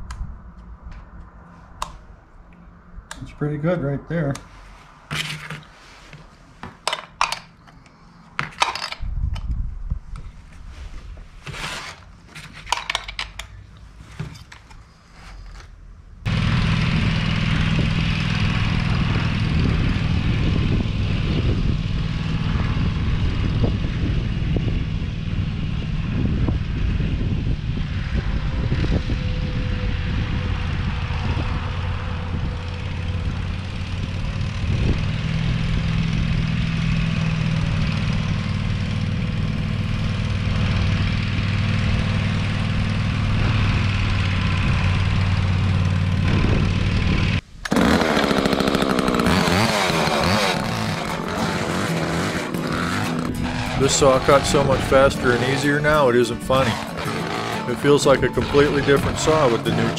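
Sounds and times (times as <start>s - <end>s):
riding lawn mower engine running: 16.2s - 59.9s
chainsaw chain clicking and rattling: 47.7s - 54.4s.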